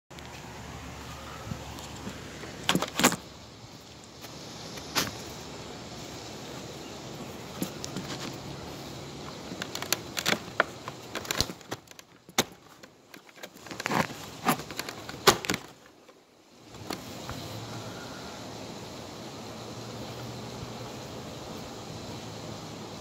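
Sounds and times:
steady low hum: 0:16.2 - 0:23.0.

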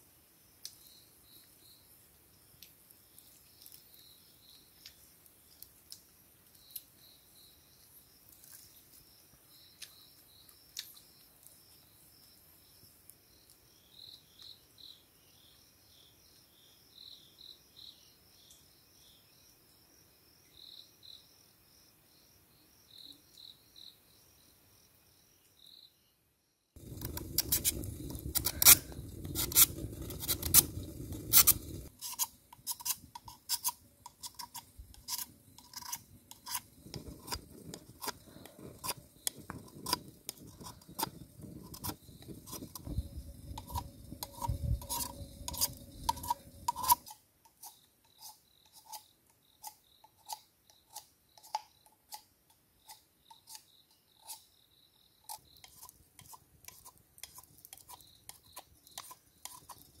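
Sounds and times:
low flame rumble: 0:26.8 - 0:31.9, 0:34.7 - 0:46.8
campfire crackling and popping: 0:26.8 - 0:47.1, 0:55.8 - 1:00.0.

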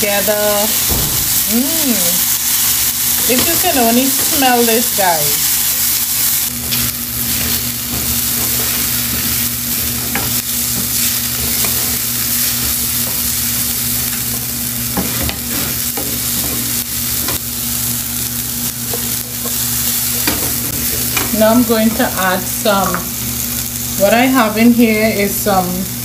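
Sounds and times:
vegetables sizzling in oil: 0:00.0 - 0:26.0
wooden spoon scraping pan: 0:06.7 - 0:13.3.

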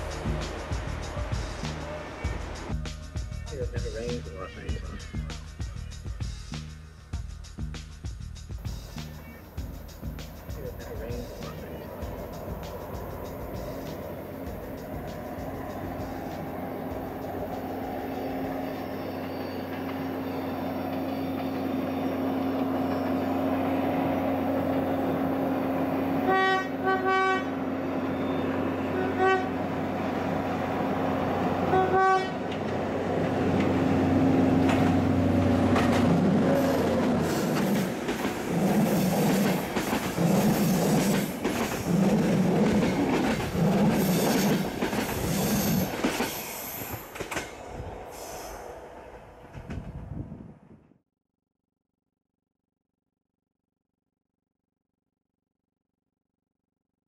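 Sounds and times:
diesel locomotive engine: 0:00.0 - 0:50.8
high wheel squeal: 0:10.8 - 0:26.2, 0:27.8 - 0:29.0
train horn blasts: 0:17.0 - 0:30.0, 0:31.3 - 0:32.6
wheels clattering over rail joints: 0:32.5 - 0:47.6.

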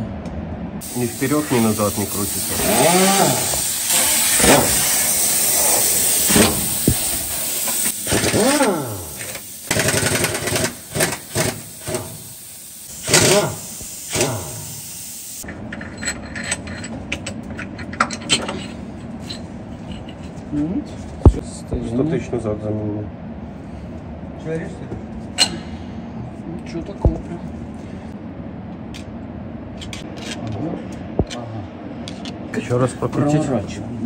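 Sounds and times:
impact wrench hammering bursts: 0:02.1 - 0:14.8
impact wrench whirring: 0:02.5 - 0:14.8.

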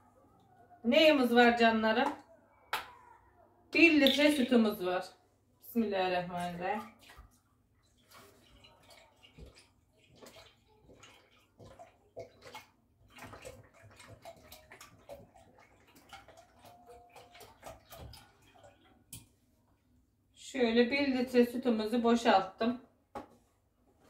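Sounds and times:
milk splashing into saucepan: 0:06.7 - 0:19.6.

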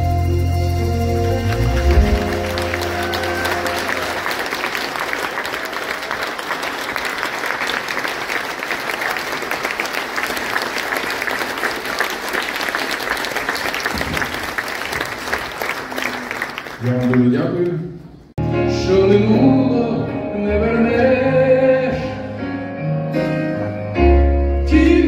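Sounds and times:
audience applauding: 0:01.2 - 0:17.8.

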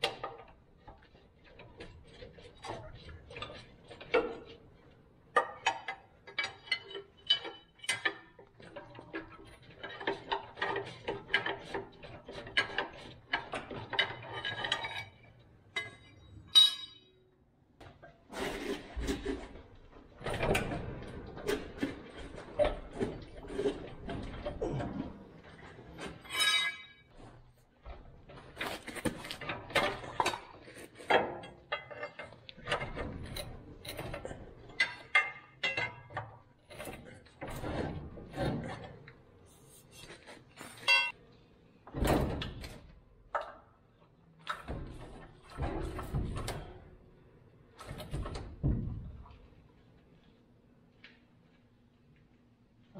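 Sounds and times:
metal clanks from hand tools: 0:40.7 - 0:41.2.

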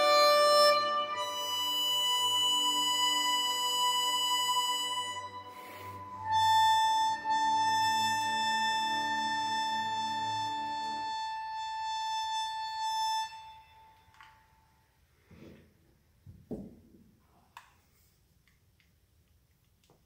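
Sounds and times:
harmonica held notes: 0:00.0 - 0:14.8
short breath: 0:05.5 - 0:06.1.

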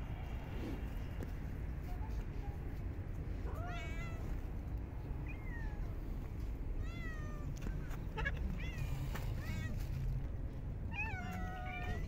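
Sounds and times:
low background rumble: 0:00.0 - 0:12.0
cat meowing: 0:03.5 - 0:04.3, 0:10.9 - 0:12.0.

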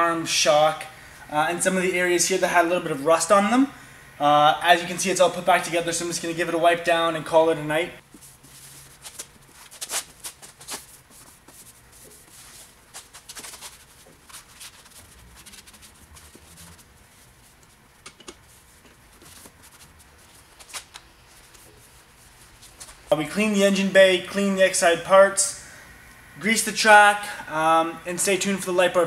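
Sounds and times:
cloth rag rubbing and rustling: 0:08.0 - 0:23.9.

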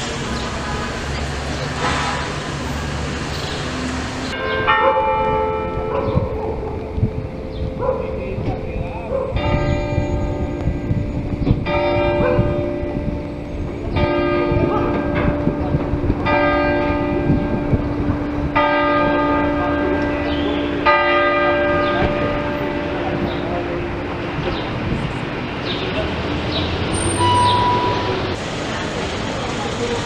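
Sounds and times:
church bell tolling: 0:04.3 - 0:26.3, 0:26.9 - 0:28.4.

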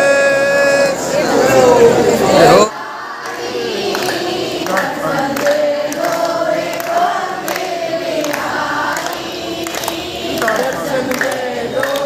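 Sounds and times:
crowd singing a chant: 0:00.0 - 0:12.0
hand claps: 0:03.2 - 0:12.0.

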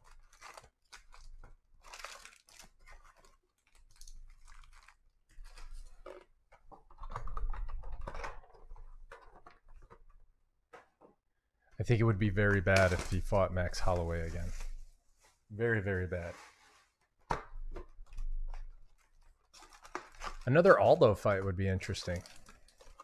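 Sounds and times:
foil packs crinkling: 0:00.0 - 0:06.3, 0:12.7 - 0:13.3, 0:18.8 - 0:23.0.

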